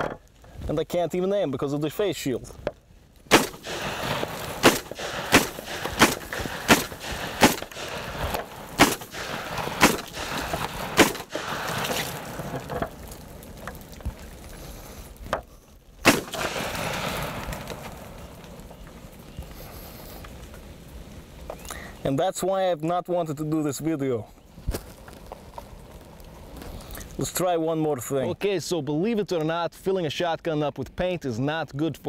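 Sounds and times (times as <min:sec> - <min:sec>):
shotgun shots: 0:03.3 - 0:12.2, 0:16.0 - 0:17.8.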